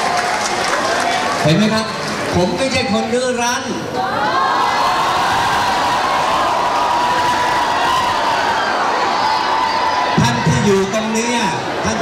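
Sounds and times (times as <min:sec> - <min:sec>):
crowd booing: 0:03.8 - 0:12.0.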